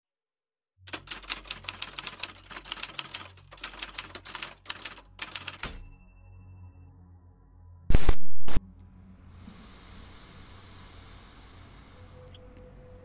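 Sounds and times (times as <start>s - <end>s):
typewriter keystrokes: 0.9s - 5.8s
typewriter bell ringing: 0.9s - 6.4s.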